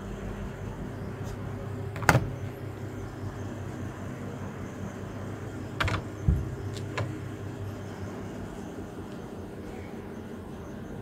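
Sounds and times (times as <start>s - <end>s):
fridge low hum: 0.0s - 11.0s
plastic door snapping shut: 2.0s - 2.4s, 5.8s - 7.2s.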